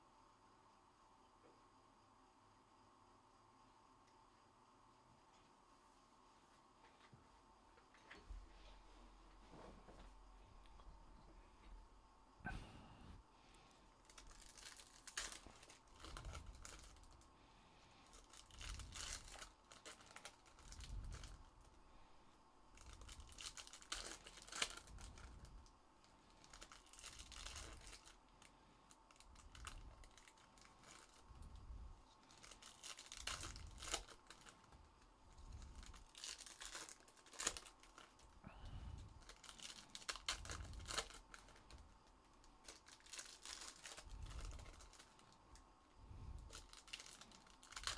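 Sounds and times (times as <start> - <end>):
foil wrappers tearing and crinkling: 14.0 - 17.2, 18.0 - 21.6, 22.8 - 25.6, 26.3 - 34.8, 35.4 - 38.4, 39.2 - 45.4, 46.4 - 47.9.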